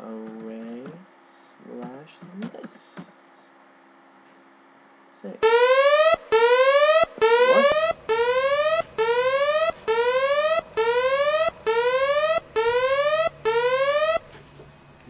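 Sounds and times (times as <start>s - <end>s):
electronic klaxon alarm whoops: 5.4s - 14.4s.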